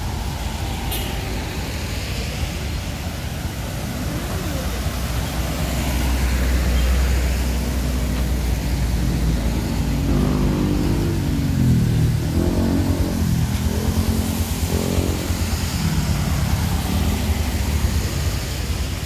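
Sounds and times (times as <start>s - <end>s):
low traffic rumble: 0.0s - 19.0s
vehicle engine passing: 4.5s - 18.7s.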